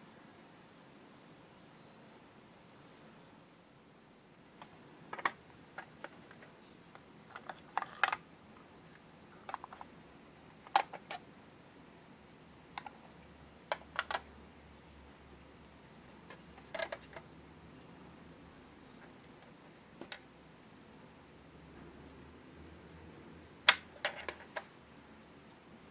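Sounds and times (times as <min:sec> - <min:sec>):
plastic toy clicks and taps: 0:10.7 - 0:11.2, 0:13.7 - 0:14.2, 0:20.0 - 0:20.2.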